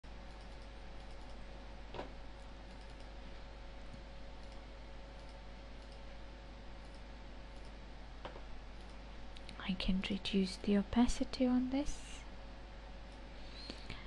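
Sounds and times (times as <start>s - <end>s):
recording hiss and hum: 0.0s - 14.0s
computer mouse clicks: 0.3s - 3.2s, 3.9s - 4.6s, 5.2s - 6.1s, 6.8s - 9.6s.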